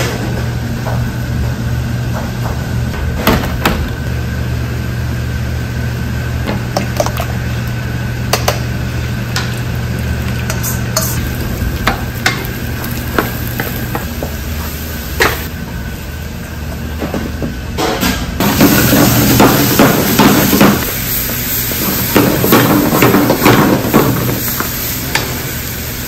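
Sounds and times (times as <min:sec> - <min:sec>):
gas burner hum: 0:00.0 - 0:26.0
egg and vegetables sizzling in wok: 0:08.7 - 0:15.5, 0:18.4 - 0:26.0.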